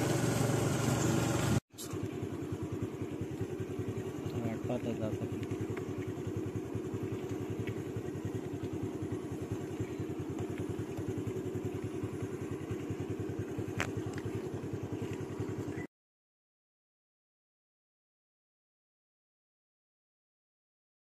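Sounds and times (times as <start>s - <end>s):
engine idling: 0.0s - 15.9s.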